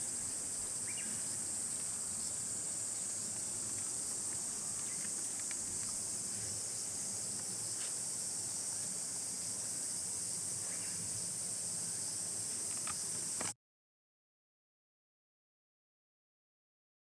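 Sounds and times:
insects buzzing: 0.0 - 13.6.

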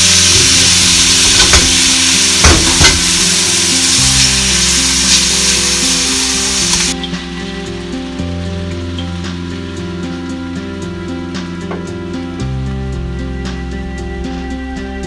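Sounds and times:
pasta sizzling in a frying pan: 0.0 - 10.3.

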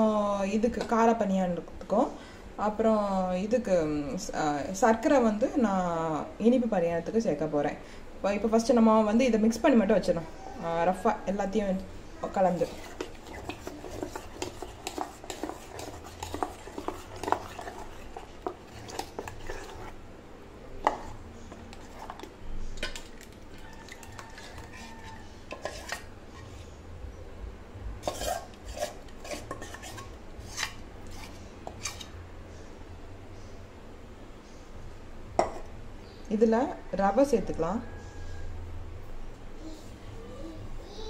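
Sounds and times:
ladle scraping a metal pot: 12.2 - 20.0, 20.8 - 26.7, 28.0 - 32.2.

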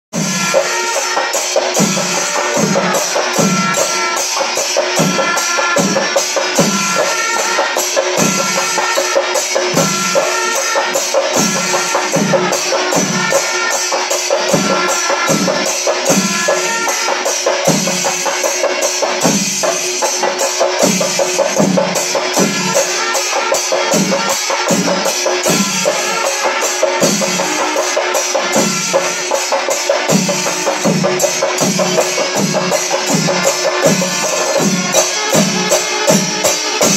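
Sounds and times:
drums beating a steady rhythm: 0.1 - 36.9
cymbals clashing: 0.2 - 36.9.

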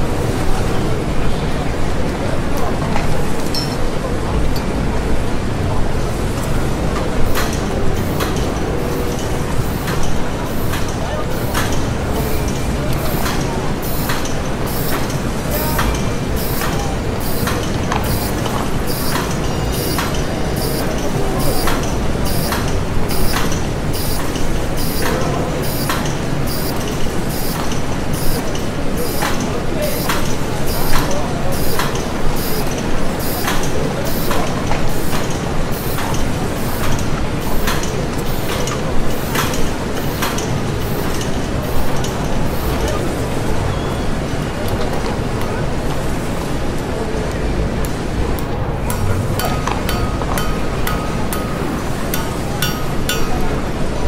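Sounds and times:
mechanical clank with hiss: 7.2 - 42.9
industrial machinery rumbling: 35.4 - 54.0.

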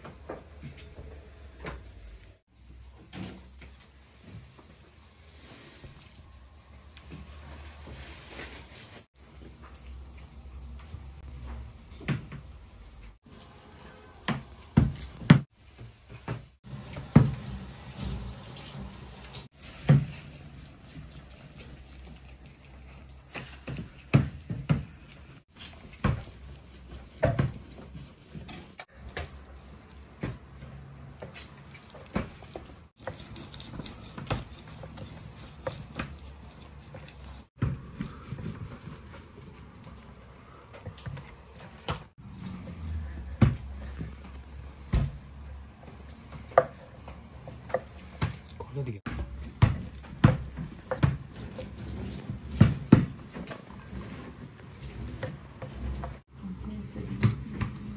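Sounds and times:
knife cutting cheese on wooden board: 33.0 - 37.2.

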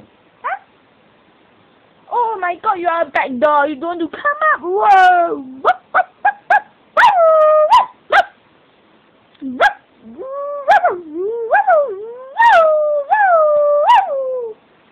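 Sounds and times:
dog whining: 0.4 - 0.7, 5.7 - 8.3, 9.6 - 14.6.

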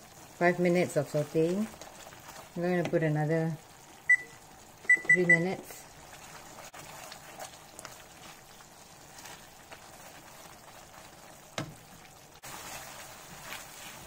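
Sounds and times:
paste sizzling and bubbling in pan: 0.0 - 4.9, 5.5 - 14.0
spatula stirring and scraping: 0.1 - 3.1, 5.9 - 14.0.

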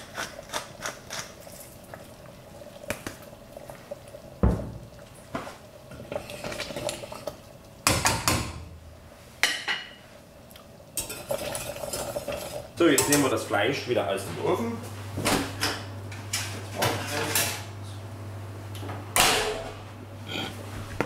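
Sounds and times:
utensils clanking in saucepan: 11.0 - 13.4.

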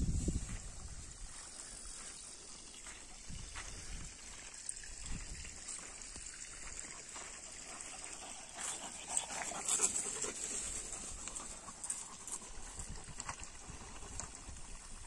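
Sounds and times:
dogs scuffling and sniffing: 7.1 - 14.4.

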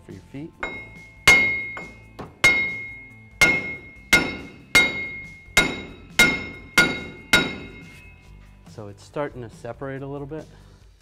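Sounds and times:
hammer striking metal: 0.6 - 8.2.

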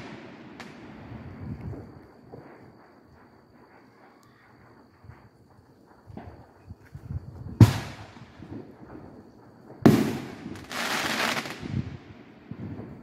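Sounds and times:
firework bangs echoing: 0.0 - 3.1, 7.6 - 13.0
firework hissing crackle: 0.0 - 13.0.

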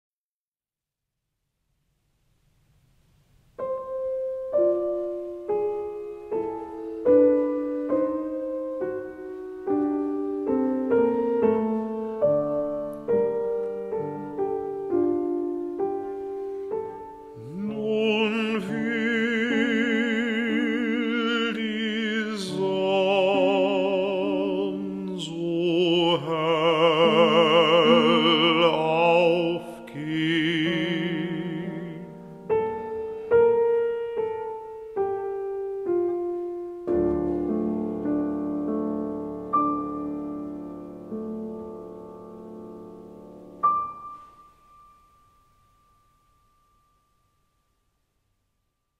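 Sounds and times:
piano music: 3.5 - 47.8
operatic singing with vibrato: 17.4 - 32.5.

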